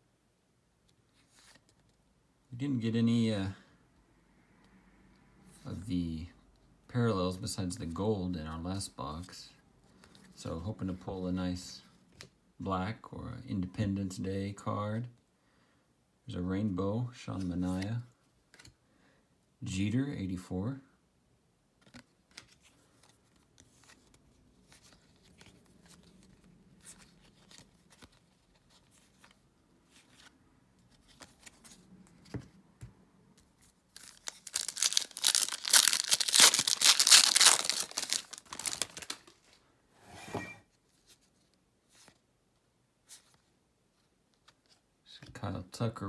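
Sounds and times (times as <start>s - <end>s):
cards flipped and slid: 18.5s - 18.8s, 21.8s - 39.5s
wrapper tearing and crinkling: 33.9s - 39.3s.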